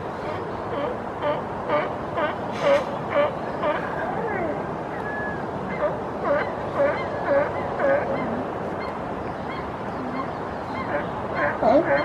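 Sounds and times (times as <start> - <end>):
sea lions barking: 9.6 - 12.0.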